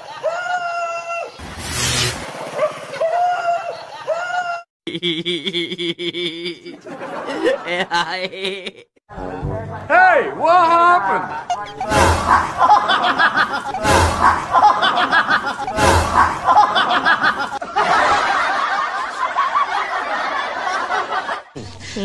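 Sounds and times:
people laughing: 0.0 - 0.9, 2.8 - 9.0, 10.6 - 22.0
sharp noises: 1.4 - 3.9, 11.5 - 17.6.

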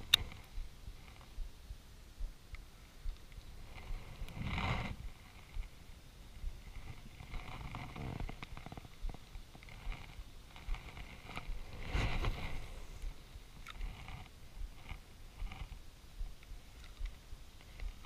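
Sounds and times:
small clicks: 0.0 - 1.3
low bumps: 6.4 - 17.1
loud rustle: 9.6 - 13.2.

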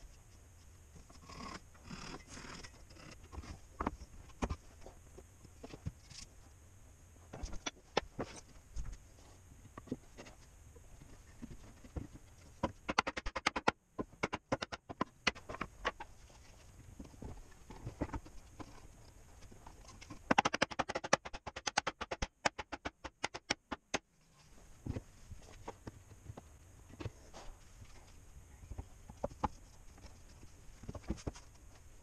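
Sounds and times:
wooden parts knocking and clicking: 11.0 - 16.2, 17.0 - 24.0, 28.7 - 31.6.

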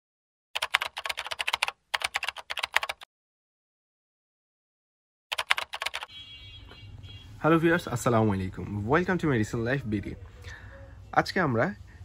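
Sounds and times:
rapid keyboard typing clicks: 0.6 - 3.1, 5.3 - 6.1.

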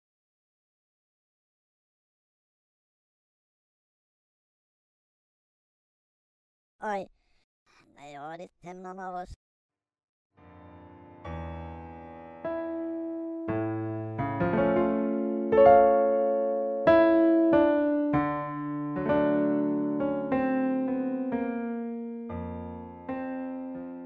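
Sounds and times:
slow solo piano: 10.4 - 24.0.

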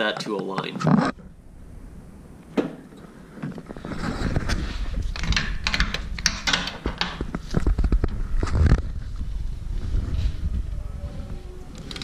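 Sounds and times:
tool clicks and clunks: 5.1 - 7.4.

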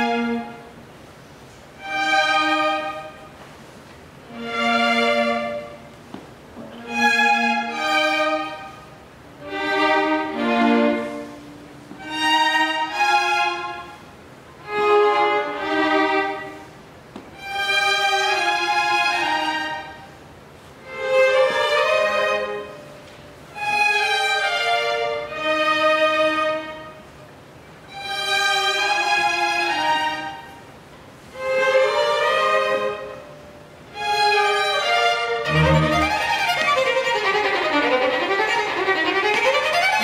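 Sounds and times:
violins playing short phrases: 31.3 - 40.0.

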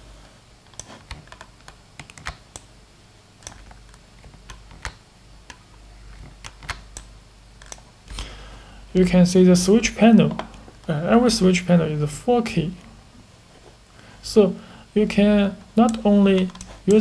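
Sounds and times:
faint low hum: 0.0 - 17.0
computer keys clicking: 0.6 - 2.7, 3.4 - 7.9, 15.8 - 17.0.

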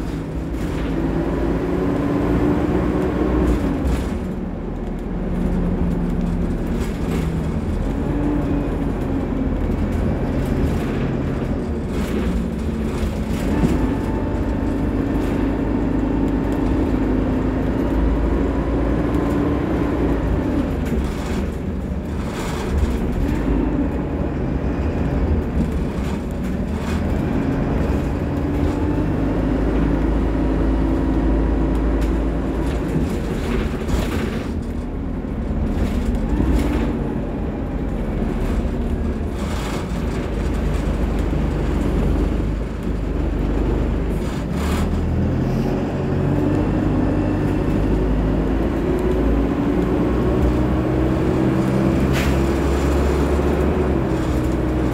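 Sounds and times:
bus engine drone: 0.0 - 54.9
road rumble: 0.0 - 54.9.

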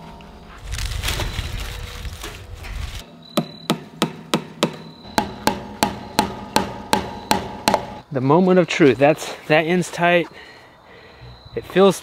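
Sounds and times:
hammer striking staple into wood: 3.4 - 8.0.

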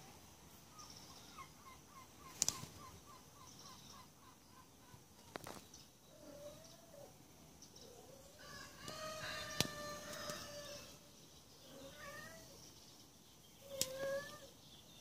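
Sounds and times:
sharp clicks: 2.4 - 2.6
cat meowing: 11.7 - 12.5.

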